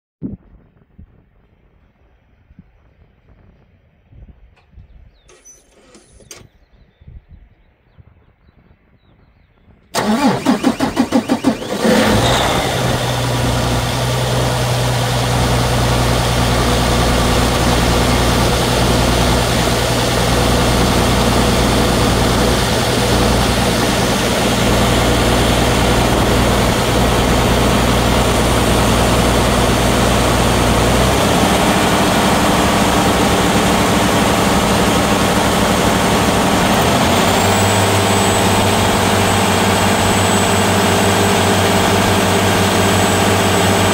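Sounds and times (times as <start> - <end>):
diesel engine starting and idling: 9.9 - 43.9.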